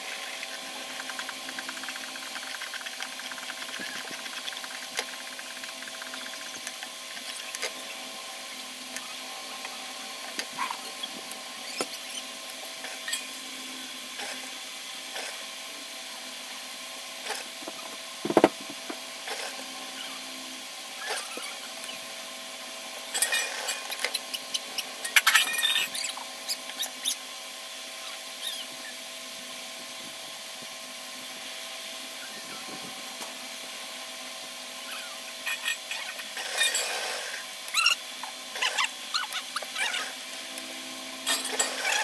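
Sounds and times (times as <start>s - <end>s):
steady background hum: 0.0s - 42.0s
thump on table: 18.2s - 18.6s.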